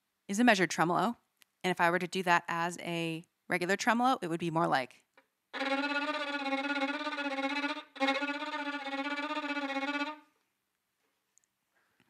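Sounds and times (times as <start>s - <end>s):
violin bowed tremolo: 5.6s - 10.3s.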